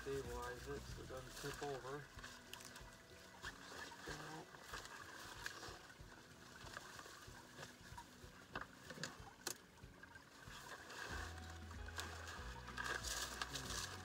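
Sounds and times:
dry brush rustling: 0.0 - 9.4, 10.3 - 14.0
background music: 0.0 - 14.0
light water sounds: 0.0 - 14.0
sticks knocking and cracking: 11.7 - 14.0.

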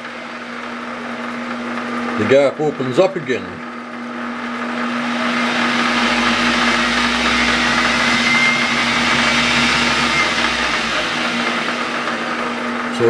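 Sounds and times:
lathe motor hum: 0.0 - 2.7, 3.6 - 13.0
mechanical whirr: 4.2 - 13.0.

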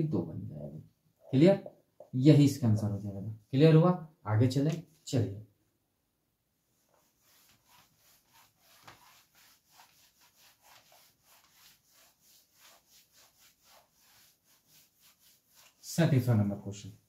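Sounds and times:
rubbing strokes on writing surface: 6.6 - 17.0.

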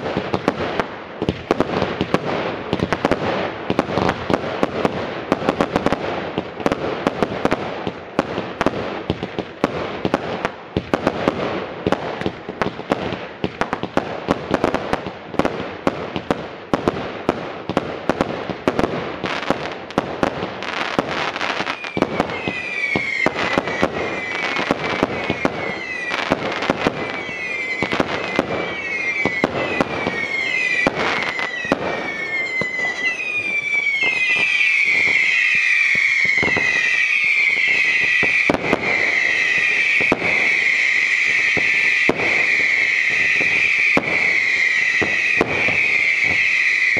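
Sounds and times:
fireworks shots and crackling: 0.0 - 46.9
falling firework whistles: 18.7 - 46.9.

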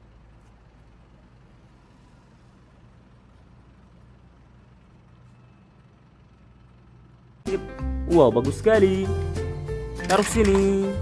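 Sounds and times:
truck engine humming: 0.0 - 11.0.

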